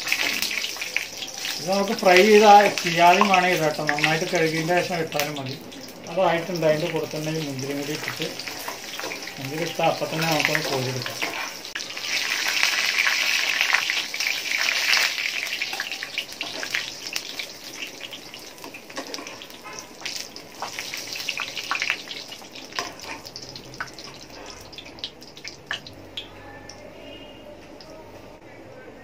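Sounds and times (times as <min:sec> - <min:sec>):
oil sizzling in a pan: 0:00.0 - 0:26.8.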